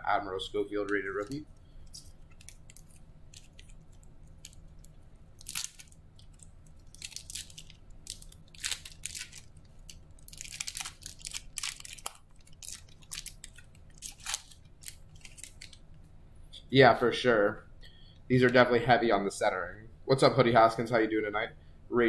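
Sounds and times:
foil wrapper crinkling and tearing: 0:01.0 - 0:15.8.

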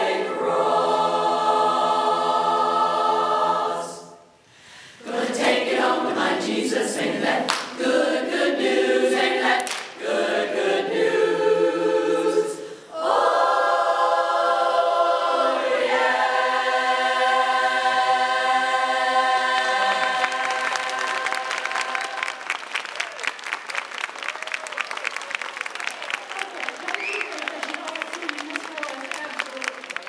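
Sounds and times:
women's a cappella chorus singing: 0:00.0 - 0:22.5
applause: 0:07.5 - 0:07.7, 0:09.6 - 0:10.0, 0:20.0 - 0:30.0.

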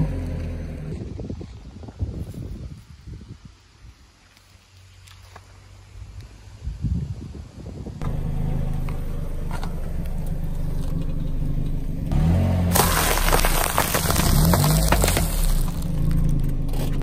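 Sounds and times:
car engine humming: 0:08.0 - 0:17.0
tyre crushing crackers: 0:12.7 - 0:17.0.

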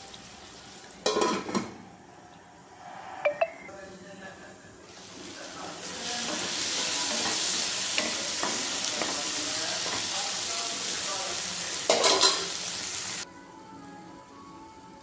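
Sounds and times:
vegetables sizzling in hot oil: 0:04.9 - 0:13.2
soft background music: 0:06.1 - 0:15.0.

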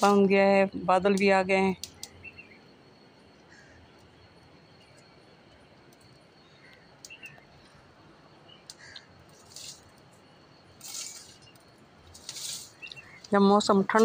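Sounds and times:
bird chirps: 0:01.9 - 0:05.2, 0:06.0 - 0:14.0
rustling hisses: 0:08.8 - 0:10.1, 0:10.7 - 0:14.0.

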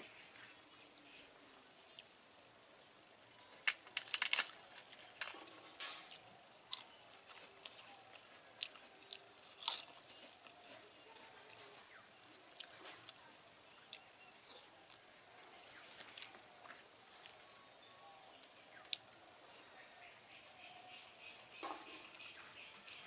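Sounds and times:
fried papad crunching: 0:03.4 - 0:11.6.

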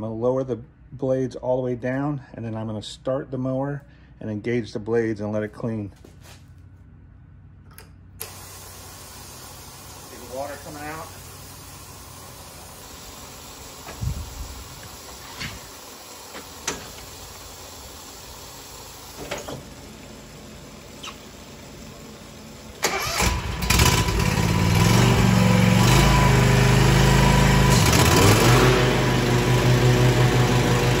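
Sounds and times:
mower engine running: 0:08.2 - 0:31.0
water hissing from hose spray: 0:08.5 - 0:19.3.

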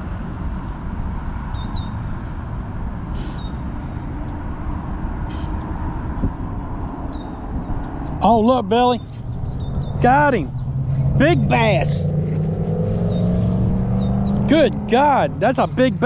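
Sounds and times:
faint high chirps: 0:09.0 - 0:14.5.

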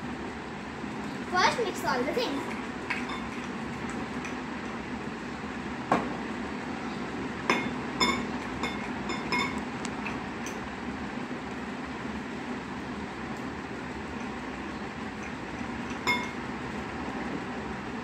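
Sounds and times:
spoon clinking glass bowls: 0:02.9 - 0:03.6, 0:07.5 - 0:10.6, 0:15.2 - 0:16.4.

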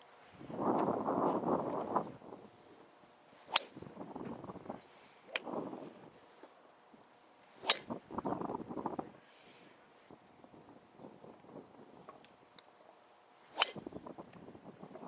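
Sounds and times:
wind buffeting microphone: 0:00.4 - 0:02.8, 0:03.6 - 0:06.2, 0:07.7 - 0:09.2, 0:13.6 - 0:15.0
golf club striking balls: 0:03.5 - 0:03.8, 0:07.6 - 0:08.0, 0:13.5 - 0:14.1.

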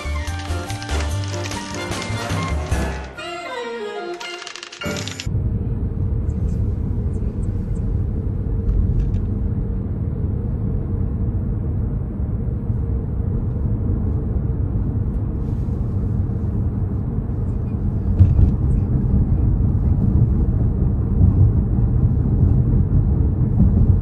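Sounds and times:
car road and engine rumble: 0:05.2 - 0:24.0.

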